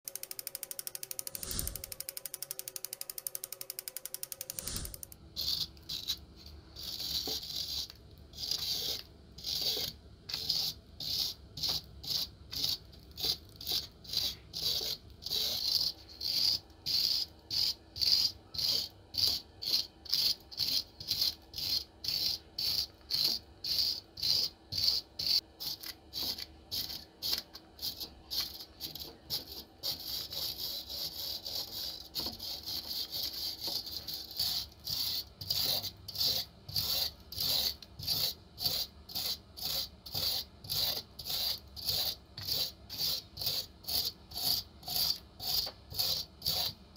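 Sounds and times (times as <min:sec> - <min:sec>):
rapid mechanical ticking: 0:00.1 - 0:05.2
wire brush scrubbing metal: 0:06.8 - 0:46.8.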